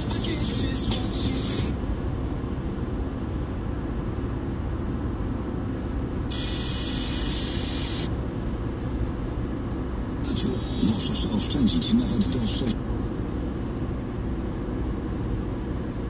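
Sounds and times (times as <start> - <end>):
road and engine rumble in car: 0.0 - 16.0
sharp hiss: 6.3 - 8.1.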